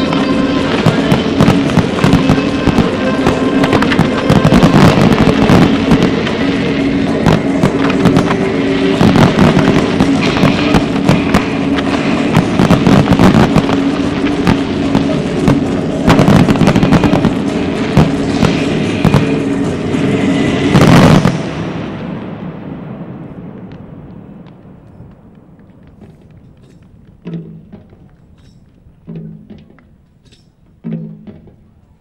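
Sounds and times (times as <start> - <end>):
music playing: 0.0 - 22.0
fireworks bangs and crackles: 0.0 - 32.0.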